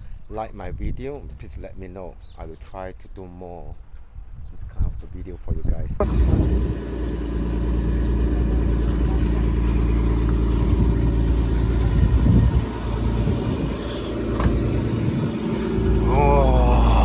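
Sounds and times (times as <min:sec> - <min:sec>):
car engine idling: 0:06.0 - 0:17.0.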